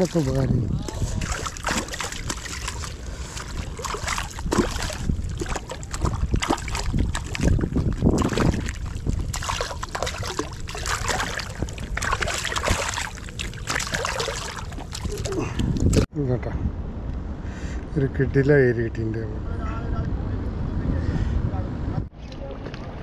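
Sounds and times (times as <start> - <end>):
wind noise on microphone: 0.0 - 17.8, 19.3 - 23.0
fish splashing at water surface: 0.9 - 16.0.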